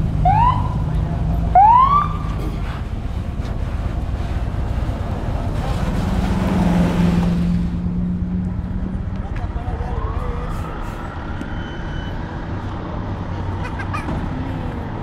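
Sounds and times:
fire engine siren whoop: 0.2s - 0.8s, 1.5s - 2.4s, 9.6s - 12.3s.

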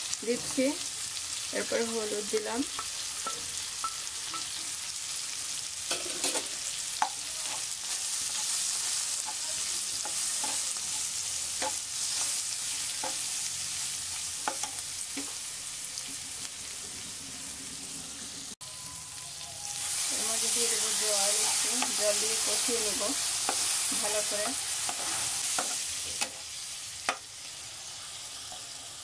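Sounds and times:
food sizzling in oil: 0.0s - 29.0s
metal spatula scraping a wok: 5.9s - 15.4s, 19.7s - 26.6s.

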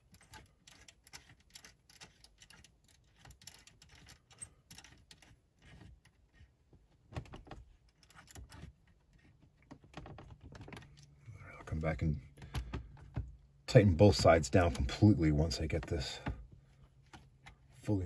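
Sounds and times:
allen wrench clicking on screw: 0.0s - 5.4s.

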